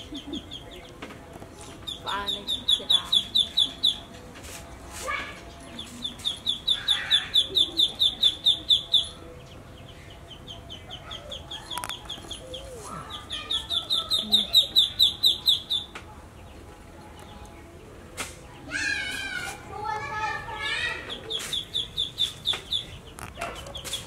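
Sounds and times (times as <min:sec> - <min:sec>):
high-pitched peeping calls: 0:00.0 - 0:01.0, 0:01.6 - 0:04.2, 0:05.4 - 0:16.0, 0:20.8 - 0:24.0.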